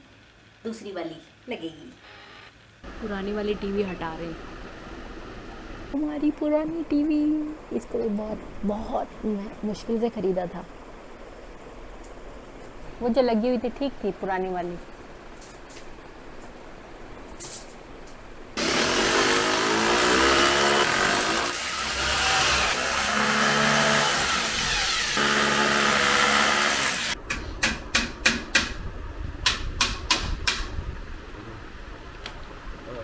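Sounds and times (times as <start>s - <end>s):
electric drill boring into wall: 18.6s - 27.2s
sharp clicks and knocks: 29.4s - 30.7s.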